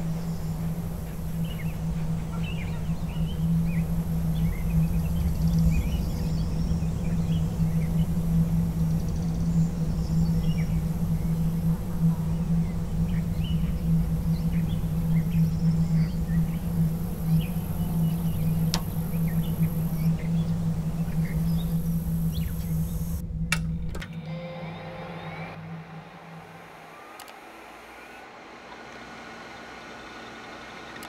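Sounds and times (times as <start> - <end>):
bird chirps: 0.0 - 23.2
high insect buzz: 0.0 - 23.2
low droning tone: 0.0 - 29.2.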